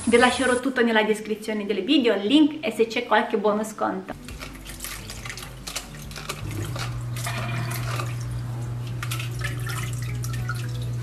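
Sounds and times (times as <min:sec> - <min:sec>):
water splashing and dripping: 0:04.2 - 0:11.0.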